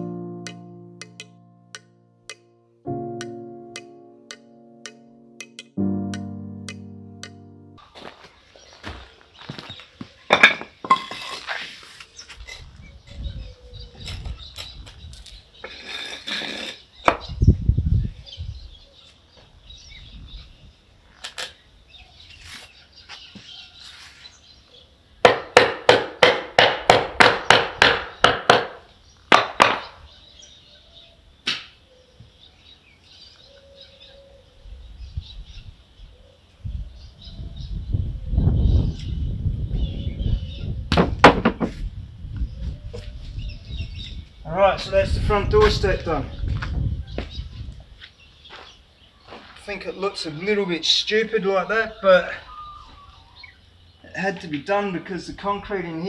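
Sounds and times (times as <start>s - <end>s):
hammer striking wood: 25.2s - 30.0s, 40.9s - 41.8s
timber handling thumps: 40.9s - 41.8s.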